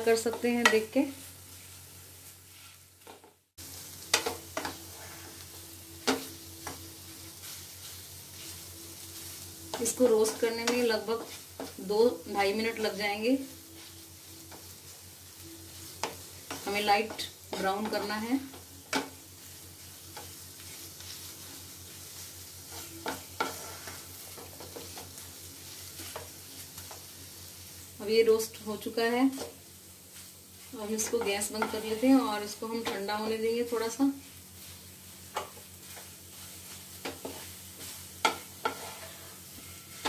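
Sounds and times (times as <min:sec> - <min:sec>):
faint sizzling in a pan: 0:00.0 - 0:40.0
wooden spatula scraping a pan: 0:00.1 - 0:03.3, 0:04.1 - 0:14.8, 0:20.2 - 0:27.1, 0:29.2 - 0:33.9, 0:34.6 - 0:40.0
spatula knocking pan: 0:31.0 - 0:31.8, 0:38.2 - 0:39.0.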